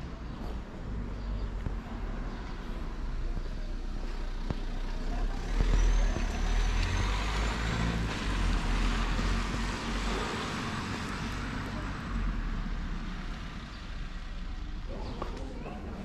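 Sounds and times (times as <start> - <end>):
vehicle engine rumble: 0.0 - 16.0
tyres hissing on wet street: 2.8 - 14.8.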